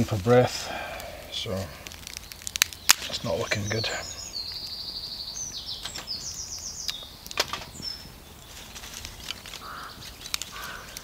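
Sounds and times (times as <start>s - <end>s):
wood clicks: 1.0s - 3.8s, 6.8s - 7.8s, 8.9s - 11.0s
songbird trilling: 2.2s - 8.5s, 9.6s - 11.0s.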